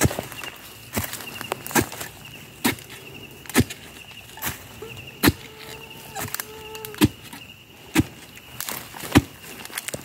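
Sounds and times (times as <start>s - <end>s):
post-hole digger thudding ground: 0.0s - 4.6s.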